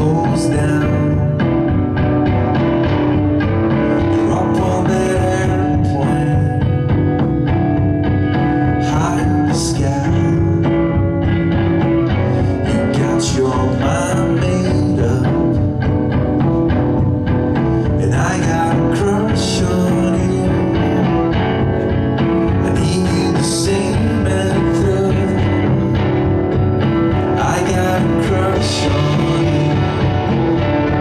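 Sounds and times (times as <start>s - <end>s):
man singing: 0.0s - 1.8s, 3.7s - 7.0s, 8.5s - 11.1s, 12.3s - 15.9s, 17.7s - 31.0s
drum kit: 0.0s - 31.0s
electric guitar: 0.0s - 31.0s.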